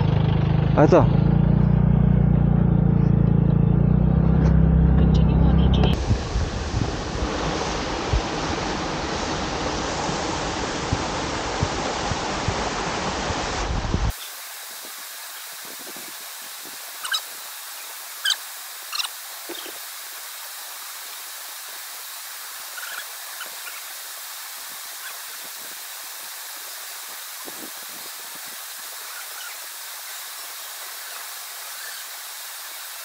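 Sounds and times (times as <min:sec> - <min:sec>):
waterfall rushing: 0:06.0 - 0:33.0
bird calls: 0:17.0 - 0:19.8, 0:22.7 - 0:24.0, 0:25.0 - 0:25.4, 0:29.0 - 0:30.2, 0:30.9 - 0:32.2.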